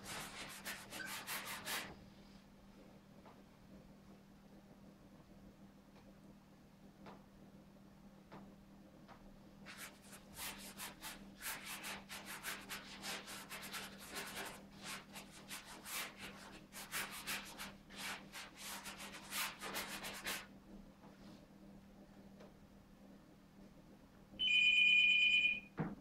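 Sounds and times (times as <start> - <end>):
paintbrush scrubbing on canvas: 0.0 - 2.0, 9.7 - 20.5.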